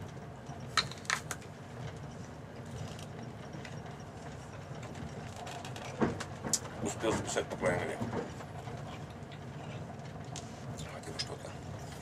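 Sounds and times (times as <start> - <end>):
train carriage rumble: 0.0 - 12.0.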